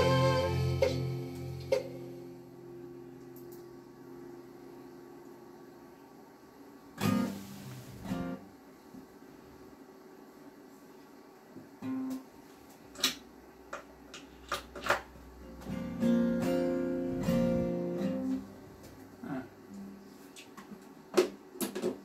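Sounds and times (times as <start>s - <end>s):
acoustic guitar notes and chords: 0.0s - 5.5s, 7.0s - 8.6s, 11.8s - 12.4s, 15.0s - 20.0s.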